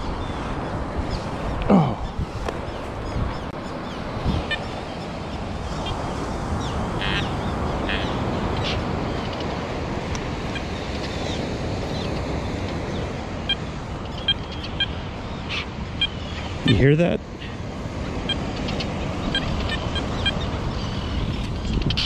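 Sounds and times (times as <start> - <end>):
oystercatchers piping calls: 6.6 - 9.6, 13.5 - 22.0.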